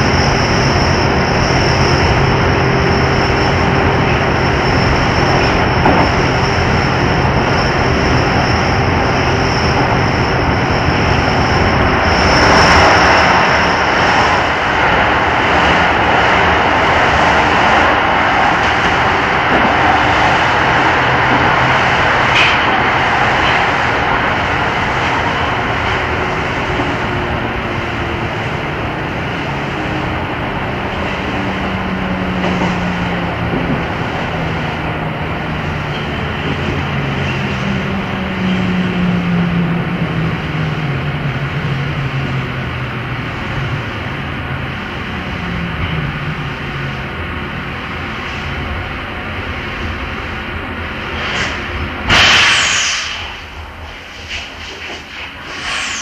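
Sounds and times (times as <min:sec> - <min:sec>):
thin high whine: 0:00.0 - 0:15.0, 0:52.1 - 0:56.0
train motors and wheels droning: 0:00.0 - 0:56.0.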